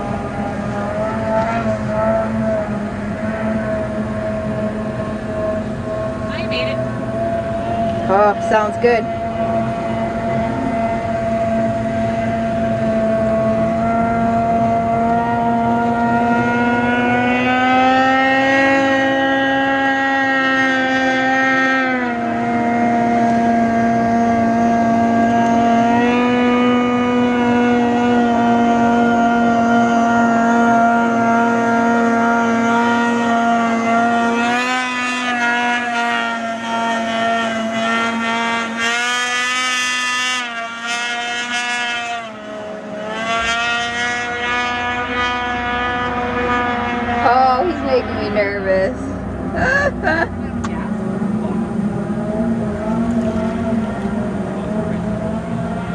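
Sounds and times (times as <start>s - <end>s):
snowmobile engine at high revs: 0.0s - 55.9s.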